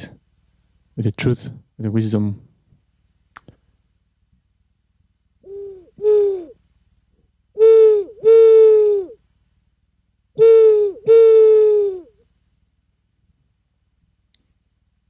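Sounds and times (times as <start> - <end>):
owl whistle hoots: 5.4 - 6.6, 7.5 - 9.2, 10.4 - 12.2.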